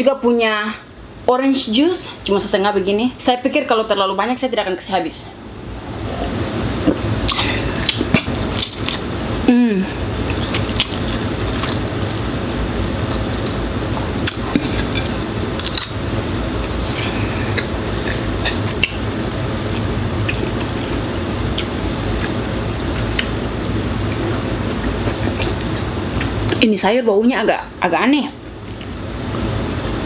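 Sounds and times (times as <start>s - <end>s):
air conditioner hum: 0.0s - 30.0s
slurping and chewing noodles: 9.9s - 19.1s, 19.7s - 26.6s.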